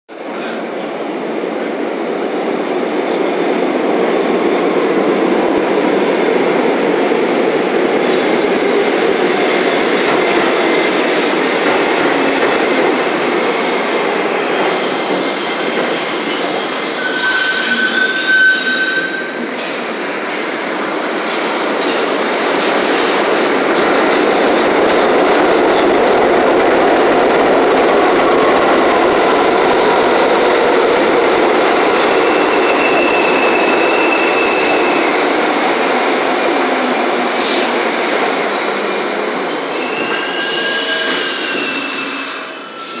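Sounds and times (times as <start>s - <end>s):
train wheels rumbling on rails: 0.3s - 43.0s
high wheel squeal: 16.3s - 19.5s, 32.0s - 35.1s, 39.7s - 43.0s.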